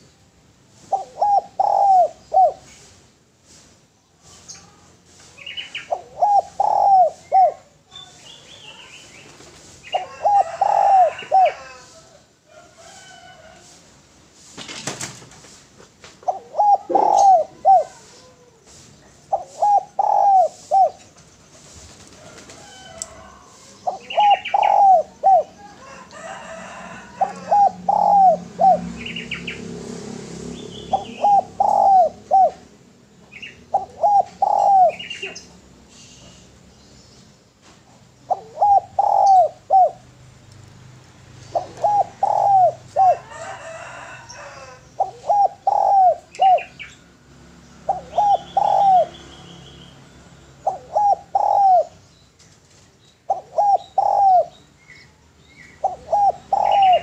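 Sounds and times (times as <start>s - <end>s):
dove cooing: 0.8s - 2.8s, 5.8s - 7.8s, 9.8s - 13.3s, 16.2s - 29.7s, 30.6s - 35.6s, 38.1s - 40.1s, 41.4s - 47.0s, 47.8s - 49.2s, 50.6s - 52.1s, 53.2s - 55.0s, 55.6s - 57.0s
small birds chirping: 0.9s - 11.9s, 16.2s - 22.0s, 22.6s - 29.8s, 30.4s - 57.0s.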